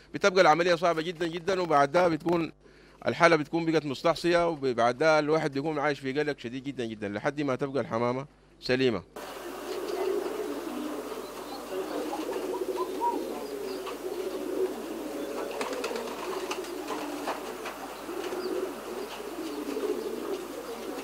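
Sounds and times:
pigeons cooing: 9.2s - 21.0s.

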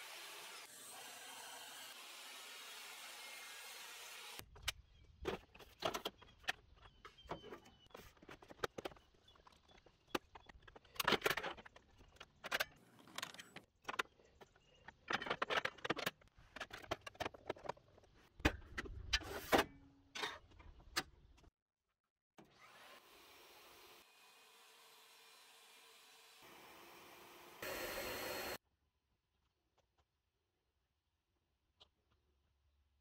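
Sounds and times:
plastic and metal parts rattling: 8.1s - 19.0s.

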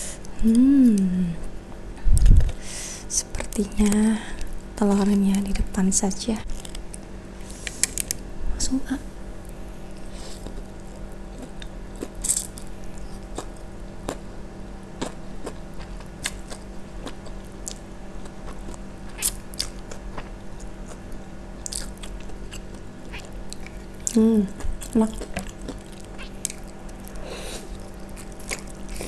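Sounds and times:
chewing with wet mouth clicks: 15.0s - 21.0s, 21.6s - 29.0s.

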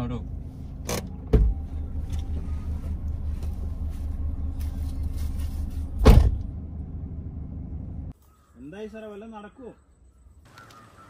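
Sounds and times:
car engine idling: 0.0s - 8.1s
car door slamming: 0.9s - 1.7s, 6.0s - 6.5s.

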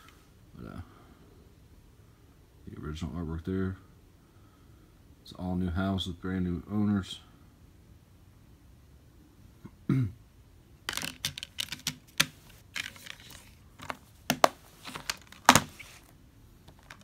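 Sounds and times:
plastic case clicks and snaps: 10.9s - 15.8s.

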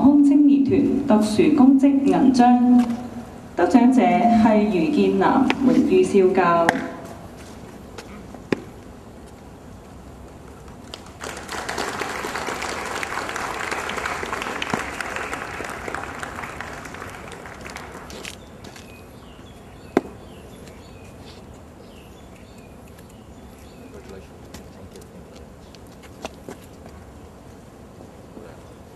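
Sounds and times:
crowd applauding: 10.9s - 18.3s.

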